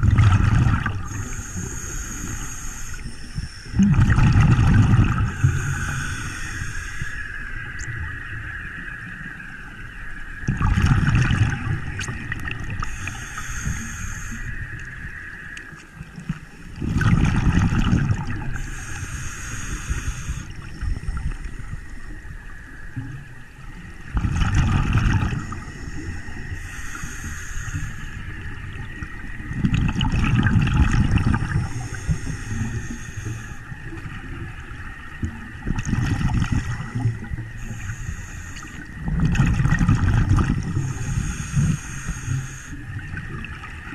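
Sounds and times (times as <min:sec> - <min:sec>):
exhaled bubbles underwater: 0:00.0 - 0:09.6, 0:10.4 - 0:43.9
regulator inhalation hiss: 0:01.0 - 0:03.8, 0:05.2 - 0:07.7, 0:12.8 - 0:15.1, 0:18.5 - 0:22.0, 0:25.4 - 0:28.3, 0:31.4 - 0:33.8, 0:36.5 - 0:38.9, 0:40.8 - 0:42.8.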